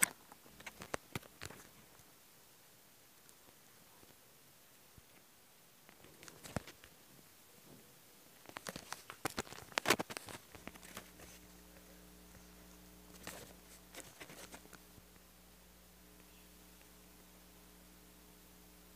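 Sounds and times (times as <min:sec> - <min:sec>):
faint steady hum: 0:00.0 - 0:18.9
phone handling noise: 0:08.5 - 0:11.4.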